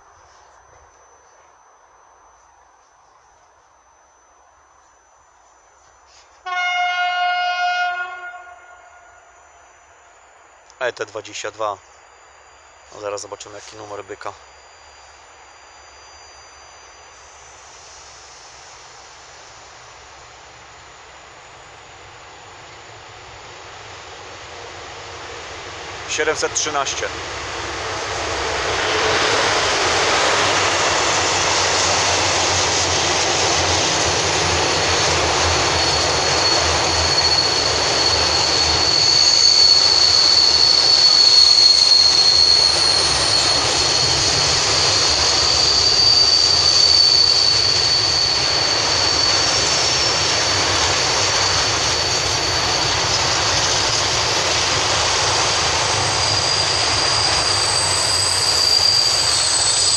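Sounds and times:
high squeal: 0:07.7 - 0:20.1, 0:26.1 - 0:59.9
train wheels rumbling on rail: 0:23.7 - 0:59.9.

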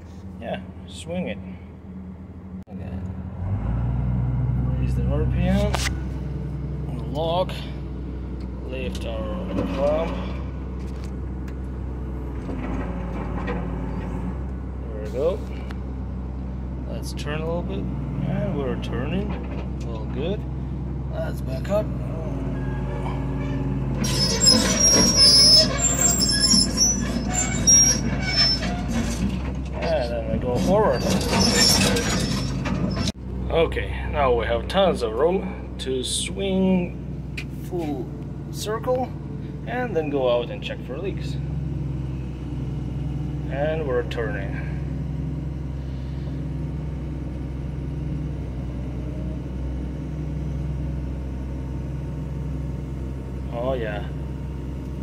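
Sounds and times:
diesel engine running: 0:00.0 - 0:55.0
track undercarriage clatter: 0:09.0 - 0:14.4, 0:19.2 - 0:20.2, 0:23.4 - 0:33.2
high-pitched squeals: 0:22.4 - 0:29.3, 0:30.6 - 0:33.1.

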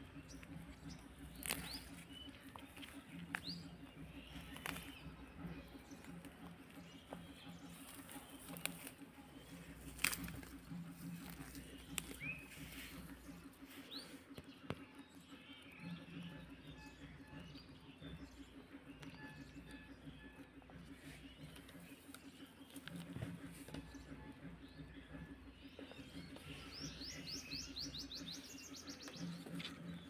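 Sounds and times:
rabbits shuffling and nibbling: 0:00.0 - 0:14.9, 0:20.6 - 0:28.4, 0:29.0 - 0:30.0
steady low hum: 0:00.0 - 0:30.0.

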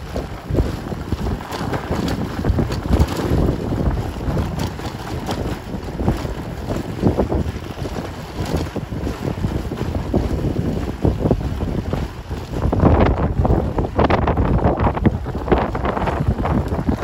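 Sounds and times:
motorbike tyres rumbling on cobbles: 0:00.0 - 0:17.0
wind buffeting microphone: 0:00.0 - 0:17.0.

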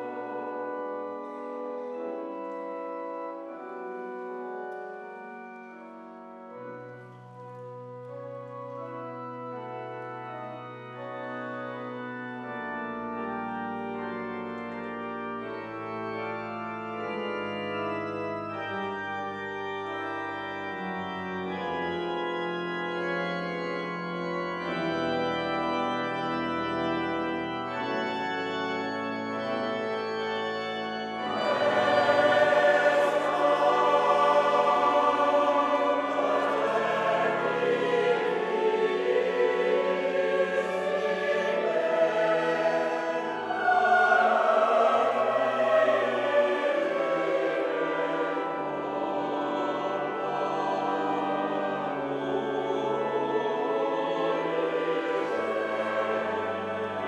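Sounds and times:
choir singing: 0:00.0 - 0:02.3, 0:30.8 - 0:57.0
pipe organ chords: 0:00.0 - 0:57.0.

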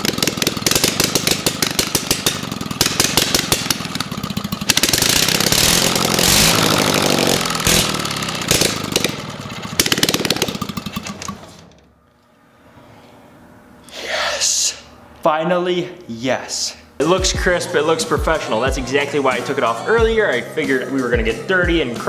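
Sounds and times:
engine revving: 0:00.0 - 0:11.7.

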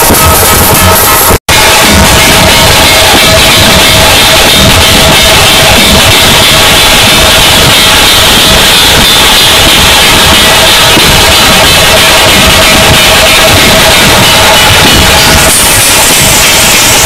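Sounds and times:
cymbals clashing: 0:00.0 - 0:17.0.

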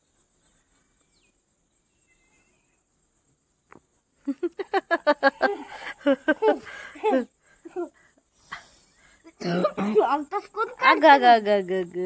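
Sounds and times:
bird chirps: 0:00.0 - 0:03.8
crickets chirring: 0:00.0 - 0:12.0
child laughing: 0:04.3 - 0:08.0, 0:09.3 - 0:11.1.

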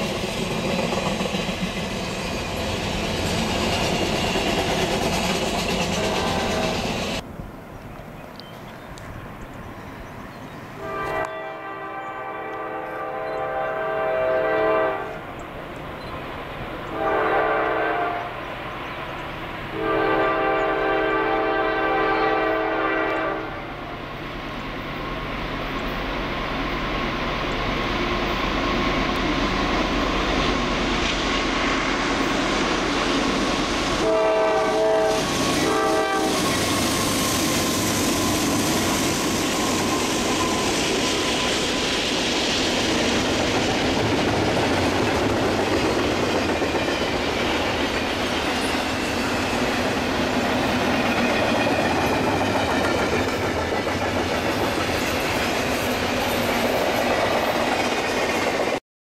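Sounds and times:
train rumble and wheel clatter: 0:00.0 - 0:58.8
locomotive horn blasts: 0:06.0 - 0:06.8, 0:10.8 - 0:15.2, 0:16.9 - 0:18.3, 0:19.8 - 0:23.8, 0:34.0 - 0:36.6.

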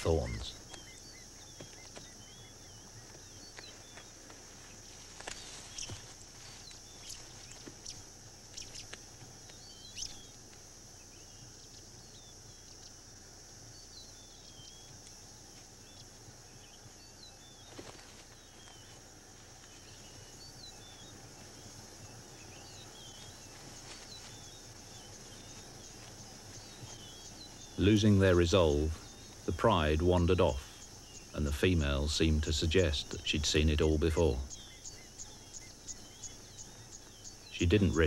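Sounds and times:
bird chirps: 0:00.0 - 0:10.4, 0:19.6 - 0:38.0
high insect drone: 0:00.0 - 0:38.0.

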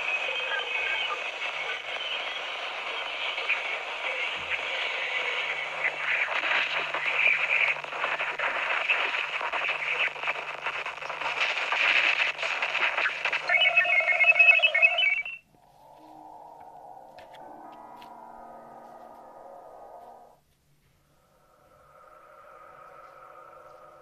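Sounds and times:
crackling radio static hiss: 0:00.0 - 0:24.0
steady humming tone: 0:00.0 - 0:24.0
warbling tones: 0:09.6 - 0:20.4.

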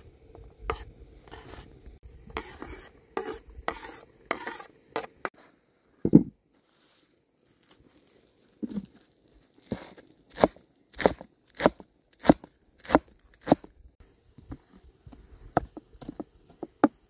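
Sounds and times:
utensil scraping cookware: 0:02.3 - 0:05.3.

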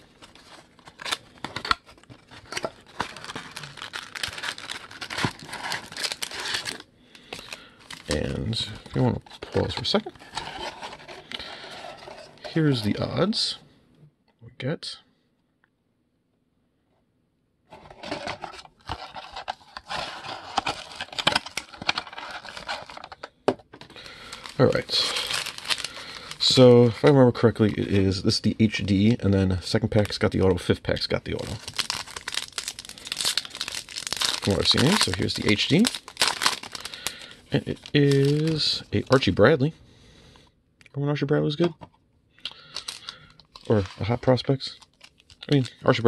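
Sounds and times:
cardboard rustling and crinkling: 0:00.0 - 0:06.8, 0:07.4 - 0:12.9, 0:17.7 - 0:27.9, 0:31.3 - 0:39.3, 0:42.8 - 0:45.7.

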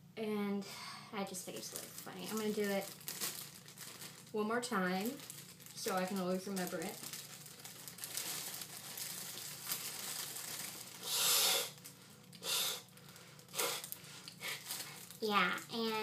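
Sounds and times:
foil balloon crinkling: 0:01.4 - 0:16.0
hiss of breath drawing helium: 0:11.0 - 0:11.8, 0:12.4 - 0:12.9, 0:13.5 - 0:14.6.

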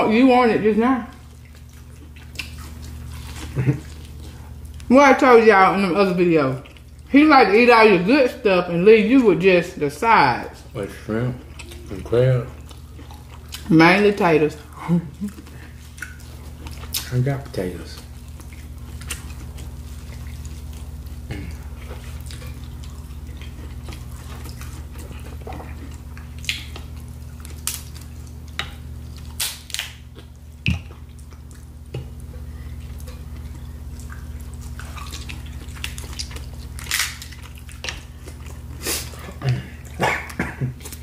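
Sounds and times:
steady low hum: 0:00.0 - 0:41.0
chewing smacks and clicks: 0:01.2 - 0:04.9, 0:12.6 - 0:13.7, 0:15.3 - 0:17.2, 0:22.1 - 0:38.8.

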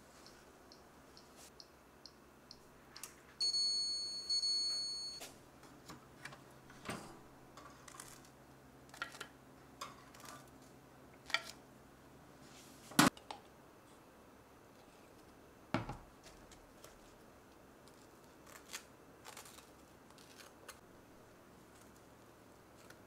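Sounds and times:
timer bell dinging: 0:03.4 - 0:05.2.

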